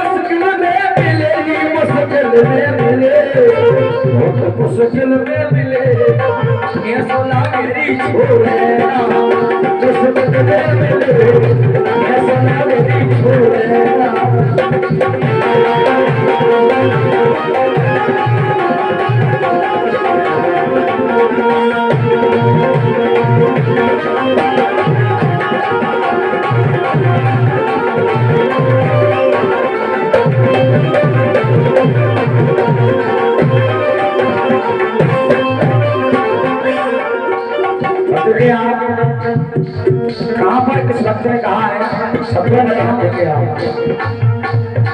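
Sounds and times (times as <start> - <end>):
hand drum rhythm: 0.0 - 44.9
harmonium melody: 0.0 - 44.9
person singing: 0.0 - 44.9.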